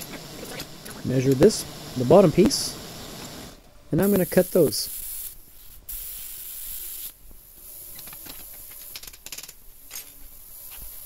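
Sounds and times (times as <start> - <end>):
plasma cutter hissing: 0.0 - 8.0.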